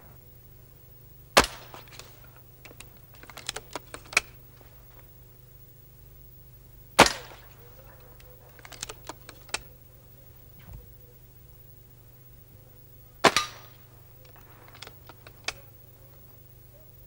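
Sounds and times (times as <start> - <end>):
air rifle shot: 1.4 - 2.1, 7.0 - 7.6, 13.2 - 13.9
small clicks: 1.7 - 5.1, 7.0 - 9.9, 13.3 - 16.5.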